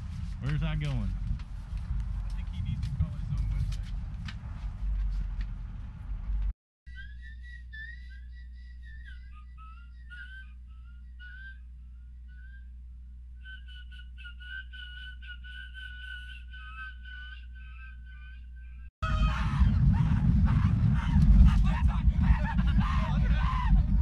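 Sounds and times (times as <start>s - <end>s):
steady low hum: 0.0s - 24.0s
person whistling a tune: 6.9s - 11.7s, 13.4s - 17.4s.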